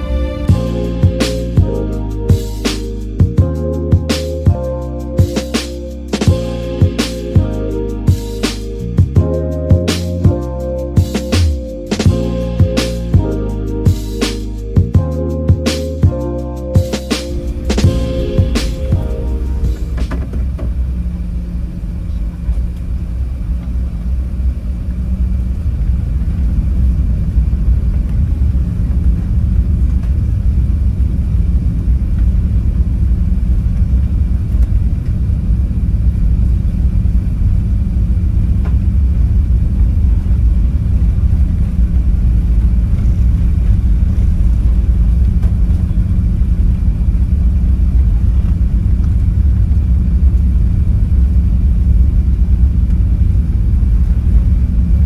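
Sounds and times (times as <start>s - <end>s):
airliner engines rumbling in cabin: 17.3s - 55.0s.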